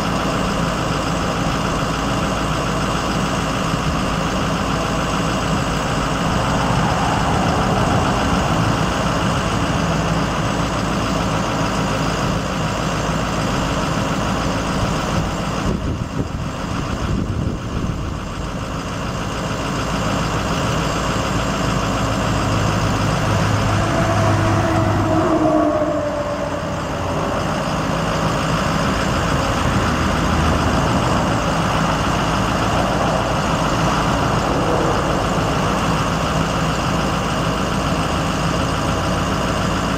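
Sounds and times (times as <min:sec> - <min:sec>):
diesel engine idling: 0:00.0 - 0:39.9
whine sliding down in pitch: 0:05.1 - 0:10.8, 0:23.1 - 0:29.3.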